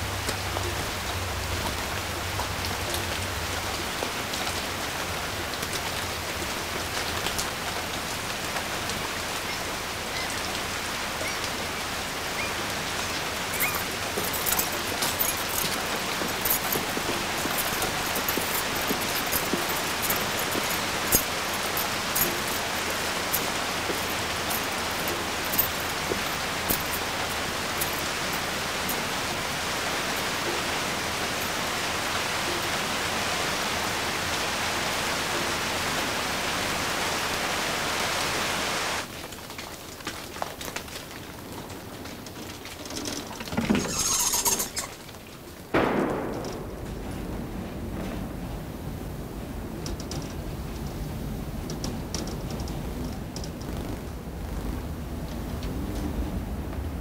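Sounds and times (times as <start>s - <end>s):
steady rain falling: 0.0s - 57.0s
sharp ticks of drops hitting: 45.7s - 47.3s.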